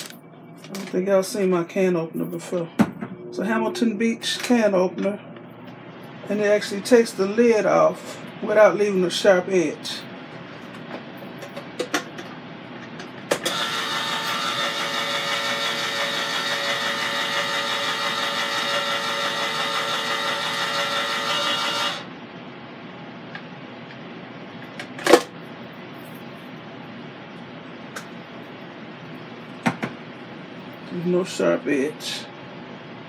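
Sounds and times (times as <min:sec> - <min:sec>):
can opener motor running: 0:13.4 - 0:22.1.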